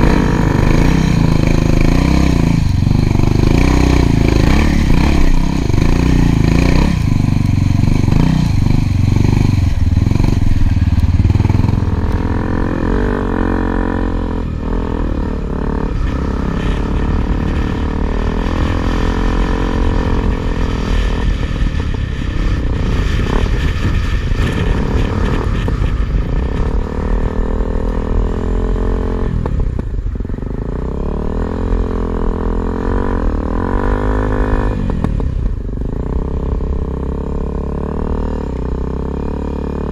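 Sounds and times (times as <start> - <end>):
wind buffeting microphone: 0.0 - 37.2
motorcycle engine revving: 0.0 - 39.9.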